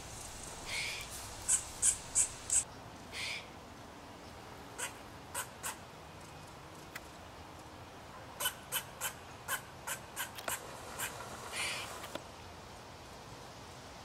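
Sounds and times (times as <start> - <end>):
squirrel alarm barks: 0.7 - 2.6, 4.8 - 5.8, 8.4 - 11.8.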